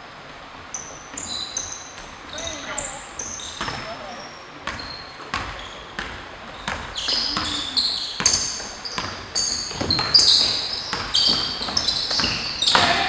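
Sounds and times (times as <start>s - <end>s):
shoes squeaking on floor: 0.7s - 13.0s
basketball bouncing on hardwood: 3.6s - 4.0s, 4.6s - 7.6s, 8.2s - 13.0s.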